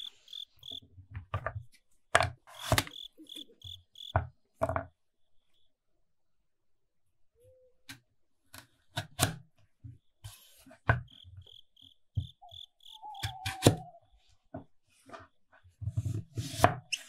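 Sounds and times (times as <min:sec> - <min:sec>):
cricket chirping: 0:00.0 - 0:00.9, 0:02.5 - 0:04.2, 0:05.2 - 0:05.7, 0:10.0 - 0:14.2.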